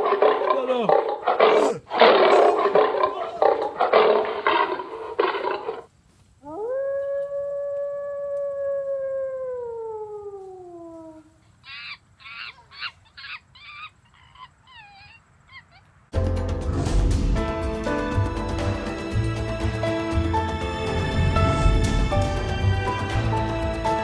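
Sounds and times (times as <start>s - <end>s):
loud roar: 0.0s - 5.8s
canine howl: 6.4s - 11.4s.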